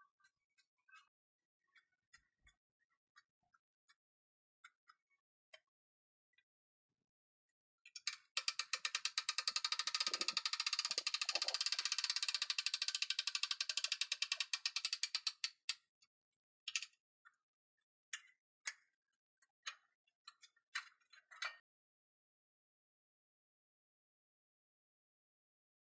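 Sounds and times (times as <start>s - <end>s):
winch ratchet clicking: 8.0s - 15.9s.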